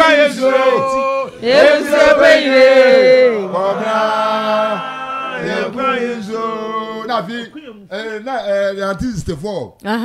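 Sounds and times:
men chanting long held notes: 0.0s - 7.9s.

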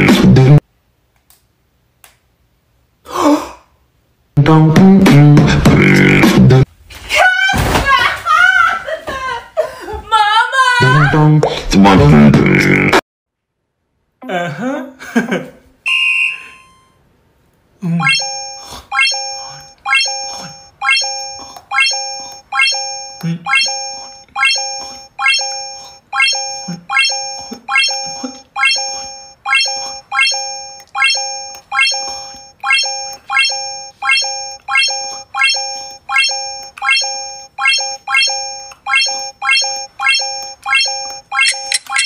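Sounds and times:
electronic two-tone beep: 18.0s - 42.0s.

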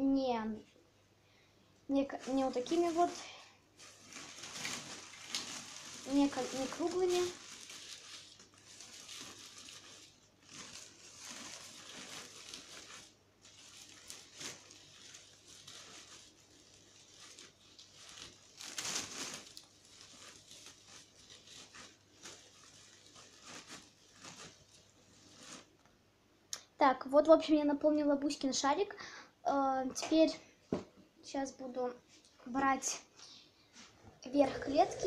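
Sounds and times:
plastic bag crinkling: 2.0s - 25.9s, 34.4s - 35.0s
dry hay rustling: 2.1s - 3.2s, 3.8s - 25.7s.

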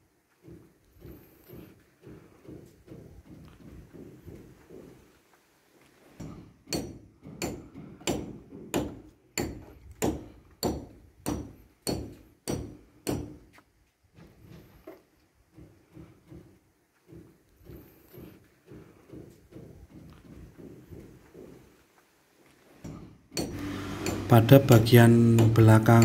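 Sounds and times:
hammer strikes: 6.2s - 13.4s, 22.8s - 26.0s.

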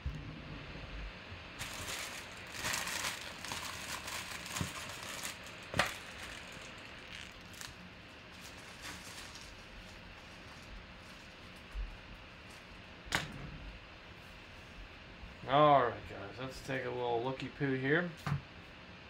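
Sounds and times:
packaging crinkling and rustling: 1.6s - 11.7s.

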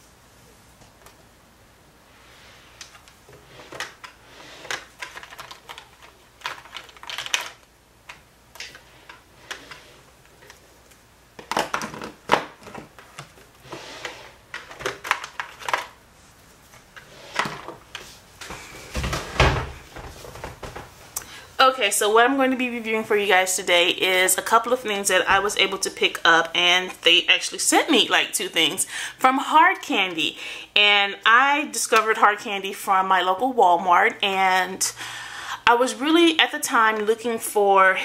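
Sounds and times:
plastic containers clattering: 2.8s - 10.6s, 11.3s - 16.0s, 16.8s - 21.0s.

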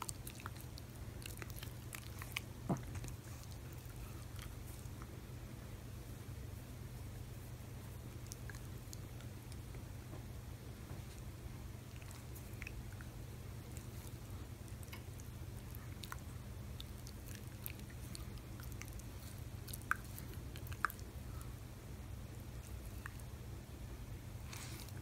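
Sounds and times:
dog mouth wet smacking: 13.7s - 21.5s.

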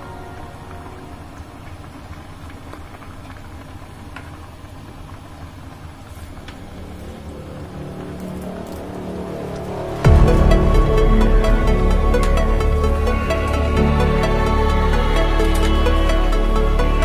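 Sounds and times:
broth boiling in a pot: 0.0s - 10.4s.

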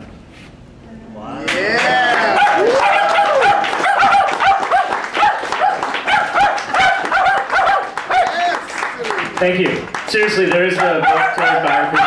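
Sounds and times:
dog yipping: 2.4s - 8.5s, 10.8s - 12.0s.

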